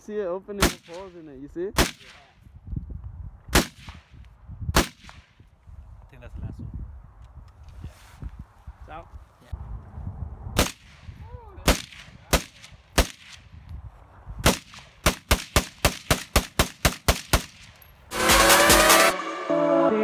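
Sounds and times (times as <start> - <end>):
rifle shots: 0.6 - 1.2, 1.8 - 2.3, 3.5 - 4.1, 4.8 - 5.3, 10.6 - 11.0, 11.7 - 13.4, 14.4 - 18.4
loud electronic music: 18.1 - 20.0.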